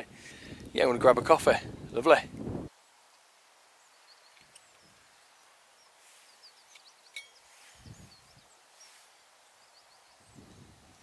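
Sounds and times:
small birds chirping: 0:02.7 - 0:11.0.

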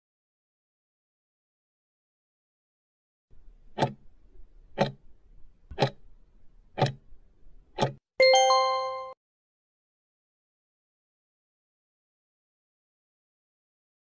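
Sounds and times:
clock ticking: 0:03.7 - 0:04.0, 0:04.7 - 0:05.0, 0:05.7 - 0:06.0, 0:06.8 - 0:07.0, 0:07.8 - 0:08.0.

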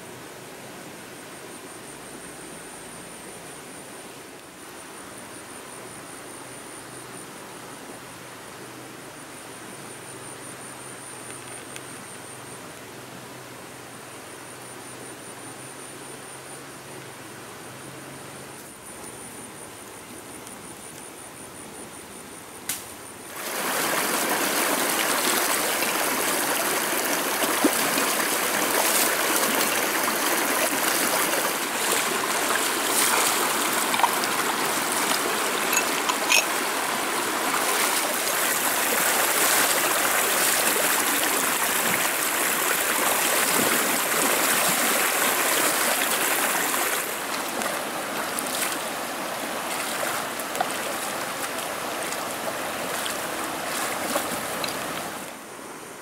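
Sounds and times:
river water rushing over stones: 0:23.2 - 0:56.0.

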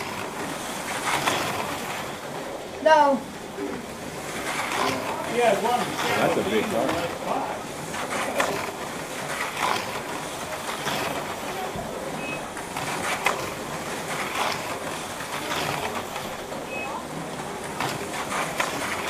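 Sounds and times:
slot car motors whirring: 0:00.0 - 0:19.0
short beeps: 0:12.2 - 0:12.5, 0:16.7 - 0:17.0.

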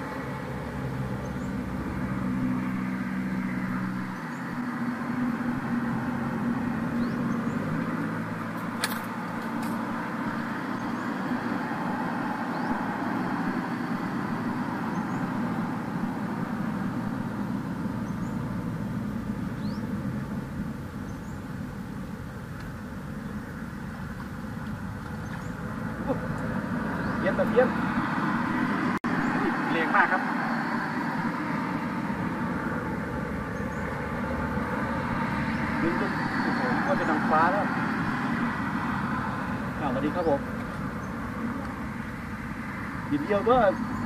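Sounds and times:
road noise: 0:00.0 - 0:44.0
vehicle engine hum: 0:00.0 - 0:44.0
sharp click: 0:08.8 - 0:09.8.

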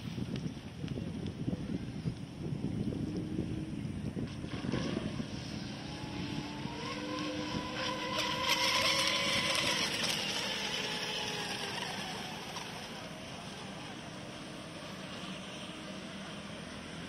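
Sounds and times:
toy boat motor whining: 0:04.4 - 0:16.8.

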